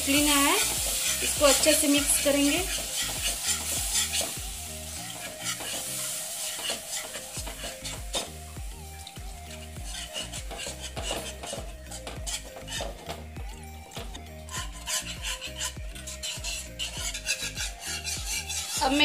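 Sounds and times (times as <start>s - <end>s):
roux sizzling: 0.0s - 19.0s
whisk beating in a pan: 0.0s - 19.0s.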